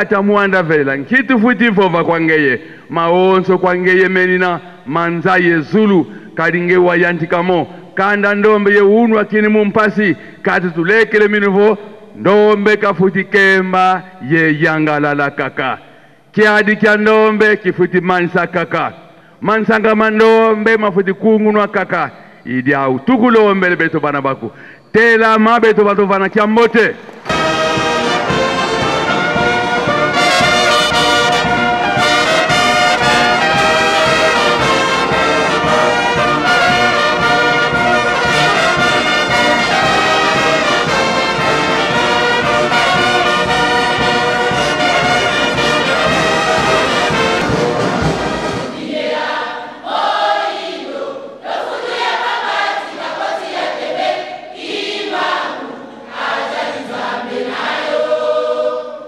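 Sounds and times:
brass band playing: 27.0 - 49.3
choir singing: 27.2 - 59.0.

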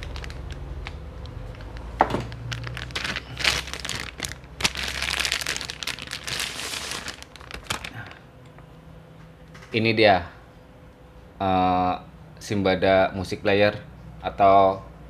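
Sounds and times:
small crackles and clicks: 0.0 - 6.3
plastic bag crinkling: 0.0 - 8.2.

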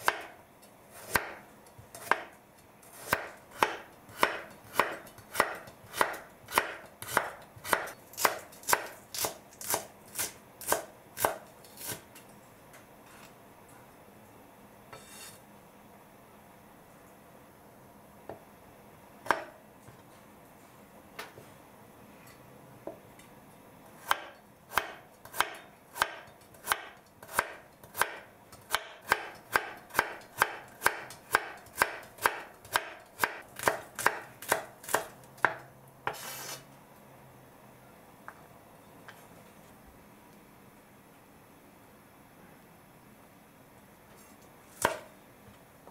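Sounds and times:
knife chopping on wooden board: 0.9 - 2.3, 2.9 - 12.0, 19.2 - 19.5, 24.0 - 36.2, 44.8 - 45.1
knife scraping board: 14.9 - 15.4, 36.0 - 36.7.

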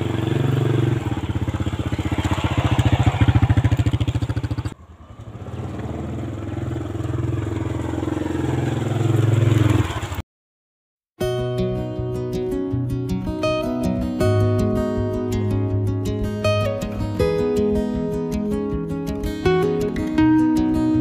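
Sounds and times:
small motorbike engine running: 0.0 - 10.2.

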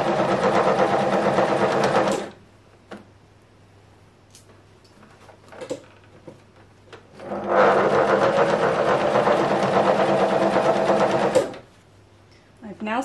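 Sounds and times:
sewing machine running: 0.0 - 2.3, 7.2 - 11.6.

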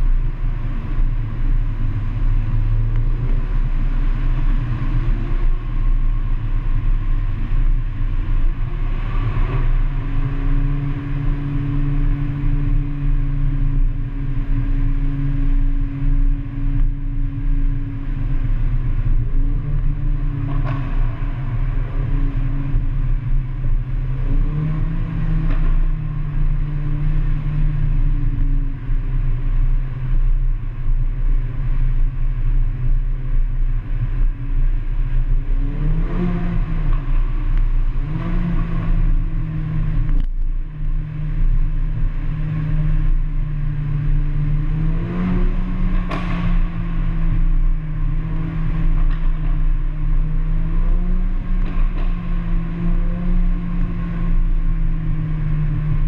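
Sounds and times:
car engine droning: 0.0 - 56.0
rattling from rough road: 0.0 - 56.0.

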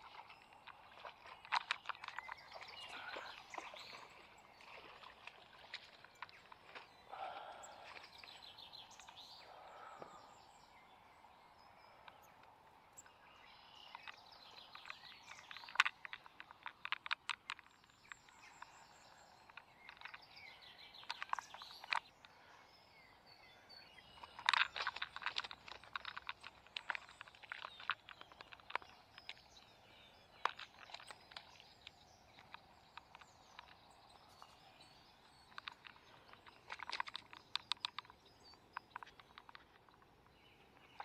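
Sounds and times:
faint bird chirps: 5.7 - 16.3.

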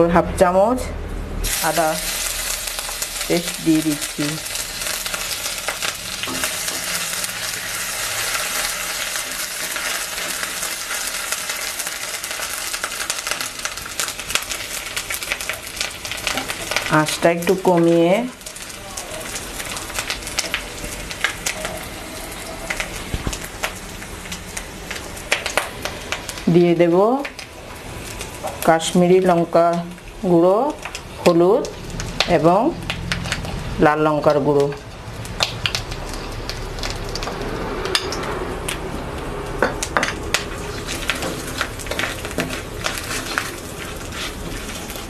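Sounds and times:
paste sizzling in hot oil: 1.4 - 26.5, 39.8 - 45.0
wooden spatula scraping metal pan: 40.8 - 45.0.

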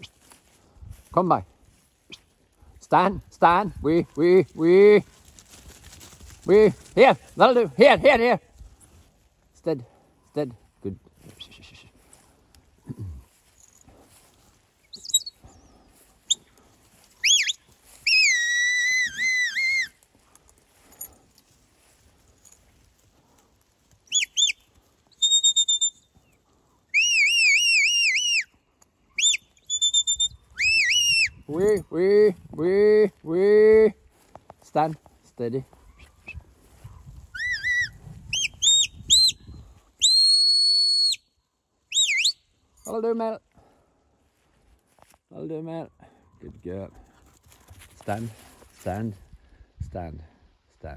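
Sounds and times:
herding whistle: 17.2 - 19.9, 24.1 - 26.1, 26.9 - 28.5, 29.2 - 31.4, 37.4 - 39.4, 40.0 - 41.3, 41.9 - 42.4.

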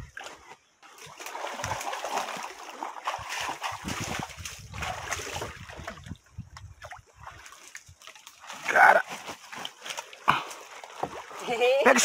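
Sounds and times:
splashing in shallow water and mud: 0.0 - 12.0.

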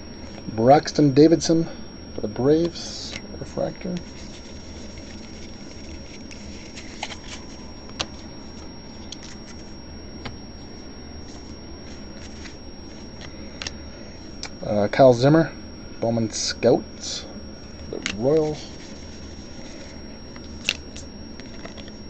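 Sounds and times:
steady low hum: 0.0 - 22.0
cards being flipped by hand: 4.0 - 10.4, 11.2 - 13.8, 18.0 - 22.0.

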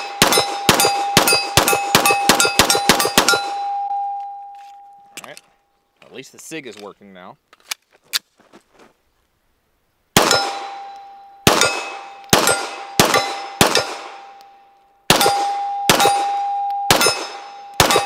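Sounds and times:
pistol shots: 0.0 - 3.6, 10.2 - 10.8, 11.4 - 14.4, 15.1 - 18.0
steel targets ringing: 0.0 - 5.2, 10.2 - 18.0.

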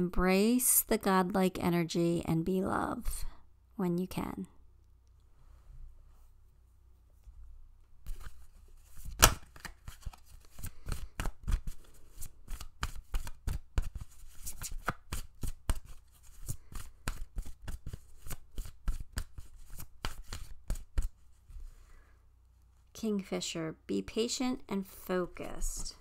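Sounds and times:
cards being shuffled: 8.0 - 21.3.

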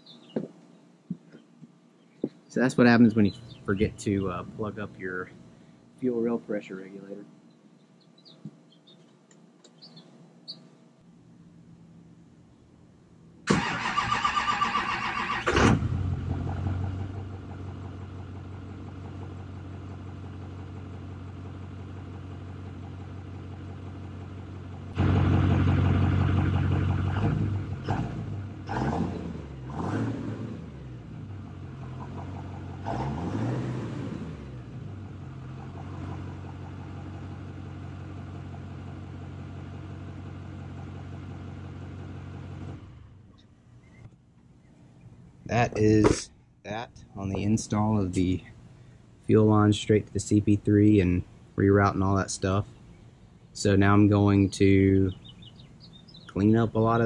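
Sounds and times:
diesel truck engine idling and revving: 13.6 - 44.0.

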